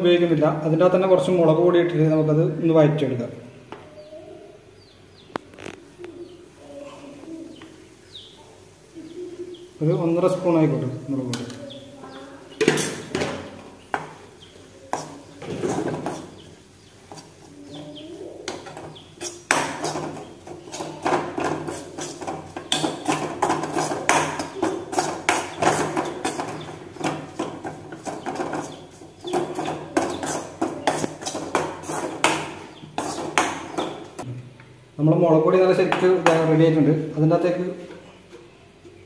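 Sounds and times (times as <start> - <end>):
metal spoon scraping a metal pan: 12.6 - 13.3, 14.9 - 16.5, 18.5 - 34.2.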